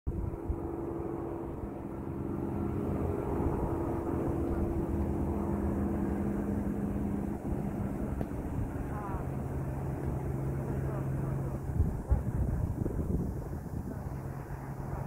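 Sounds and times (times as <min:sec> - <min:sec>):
engine hum: 0:00.1 - 0:15.0
low rumble: 0:00.1 - 0:15.0.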